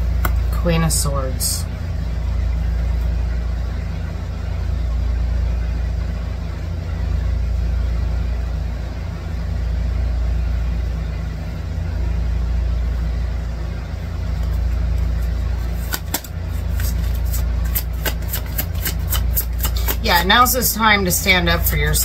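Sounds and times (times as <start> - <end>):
low motor-like hum: 0.0 - 22.0
cards being shuffled: 14.4 - 20.3.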